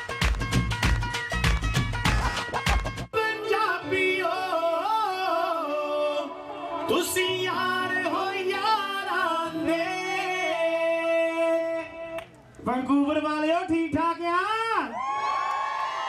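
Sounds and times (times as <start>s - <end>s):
drum-driven music: 0.0s - 3.1s
person singing ornamented melody: 3.2s - 12.2s.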